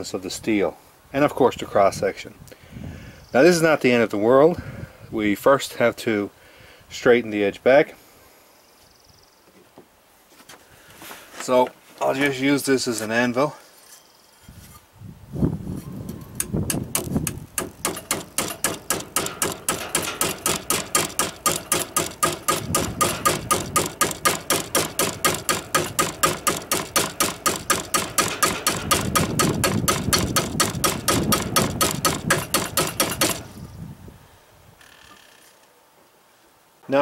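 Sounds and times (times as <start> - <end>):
hatchet hammering steel blade: 16.4 - 33.4.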